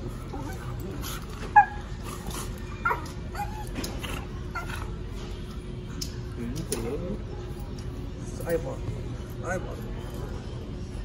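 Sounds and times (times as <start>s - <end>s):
puppies yipping and whining: 0.1s - 5.0s.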